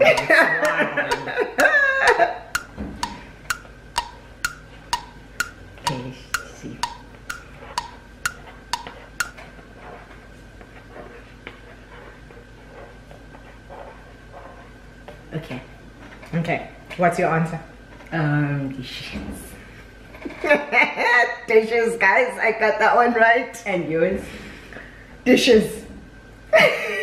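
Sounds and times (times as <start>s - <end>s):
people laughing: 0.0s - 2.5s
ticking clock sound effect: 0.0s - 9.4s.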